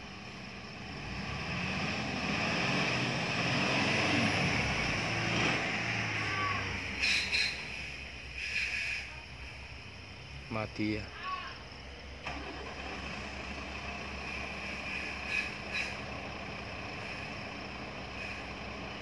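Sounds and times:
truck engine labouring: 0.0s - 19.0s
short sharp hisses: 6.8s - 9.2s, 14.3s - 16.0s, 18.1s - 18.6s.

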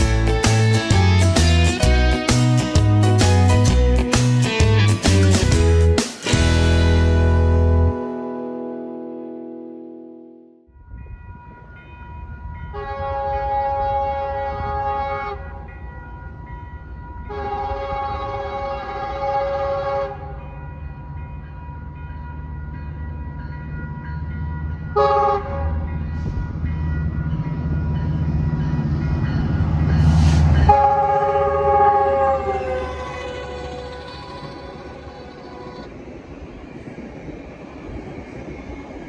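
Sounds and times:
train horn blasts: 12.7s - 15.6s, 17.3s - 20.4s, 25.0s - 25.9s, 30.4s - 35.9s
locomotive rumble: 12.9s - 39.0s.

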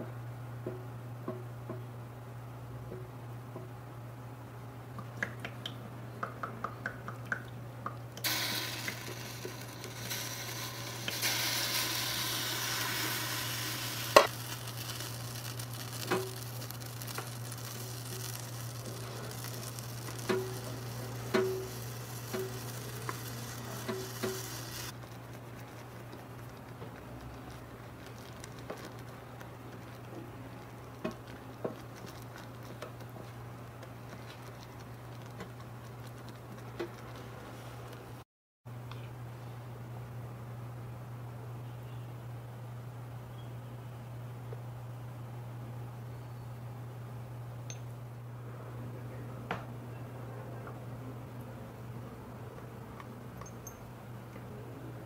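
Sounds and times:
sauce sizzling in a frying pan: 8.2s - 25.0s.

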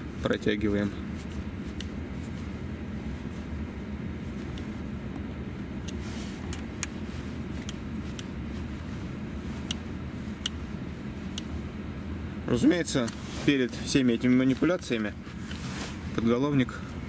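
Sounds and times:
low rumble inside car: 0.0s - 17.0s.

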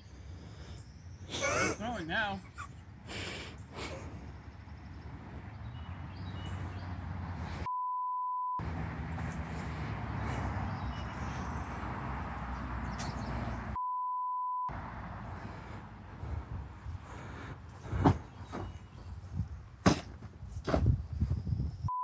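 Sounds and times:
censor bleeps: 7.7s - 8.6s, 13.8s - 14.7s.

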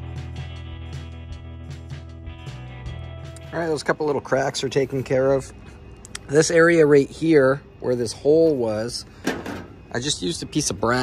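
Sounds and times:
background music with bass and beat: 0.0s - 4.1s.

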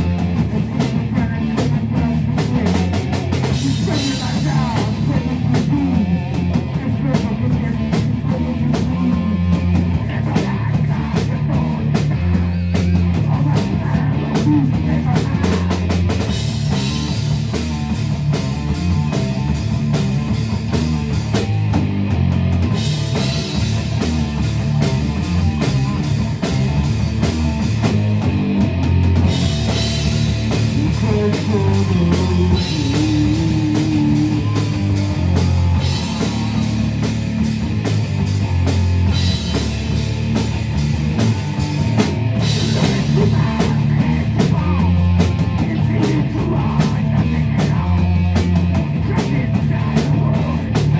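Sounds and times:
bass guitar: 0.0s - 50.9s
drum kit: 0.0s - 50.9s
electric guitars: 0.0s - 50.9s
person singing into microphone: 30.7s - 36.6s.

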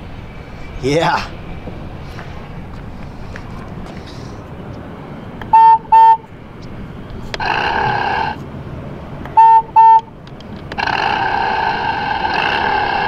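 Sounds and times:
toy electronic horn beeping: 5.5s - 6.2s, 9.4s - 10.1s.

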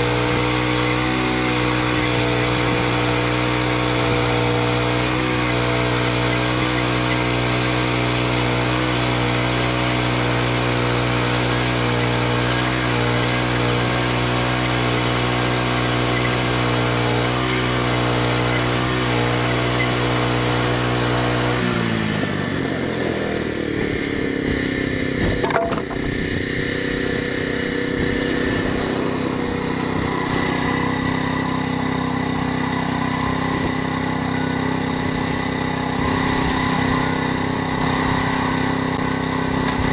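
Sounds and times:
sawmill petrol engine running: 0.0s - 39.9s
band blade cutting log: 24.4s - 26.2s, 37.8s - 39.9s.

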